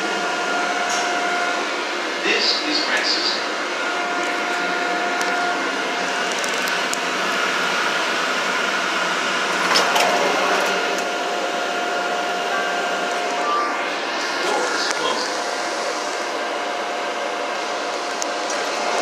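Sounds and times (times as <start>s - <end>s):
train wheel and motor rumble: 0.0s - 19.0s
faint whine tones: 10.4s - 18.9s.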